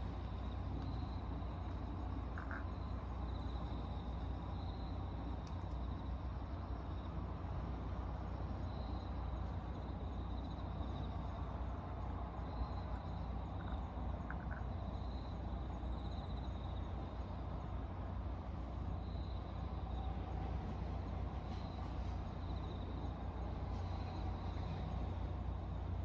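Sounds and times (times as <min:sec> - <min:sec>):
insects trilling: 0:00.0 - 0:06.1, 0:09.8 - 0:16.9
distant traffic rumble: 0:00.0 - 0:26.0.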